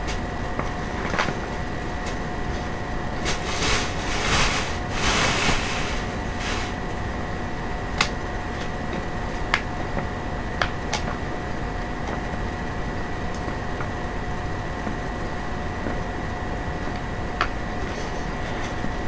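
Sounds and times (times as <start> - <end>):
background hum: 0.0 - 19.0
rustling bursts: 3.2 - 6.8.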